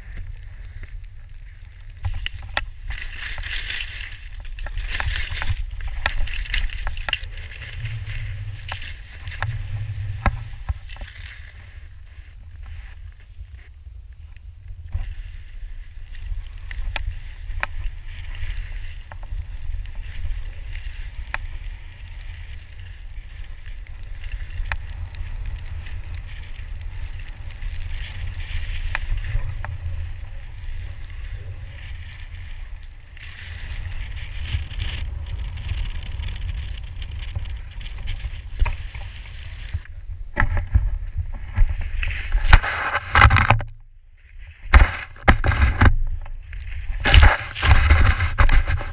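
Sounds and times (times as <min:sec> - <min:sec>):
wind rumbling on microphone: 0:00.0 - 0:48.9.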